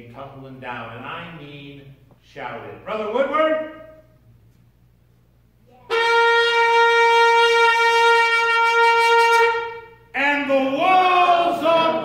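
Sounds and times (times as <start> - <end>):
shofar blast: 5.9 - 10.1.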